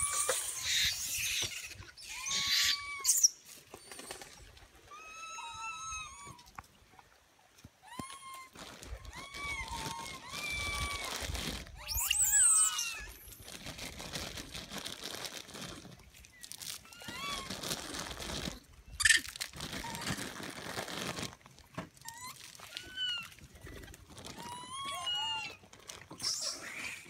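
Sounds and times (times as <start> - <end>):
monkeys giving squeaky calls: 0.0 - 3.4, 11.8 - 13.1, 19.0 - 19.3, 26.2 - 27.0
rustling and crinkling: 6.2 - 27.0.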